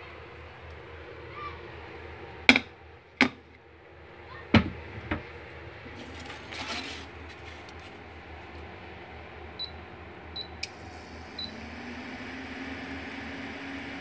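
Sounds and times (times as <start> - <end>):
kitchen knocks: 4.5 - 5.3.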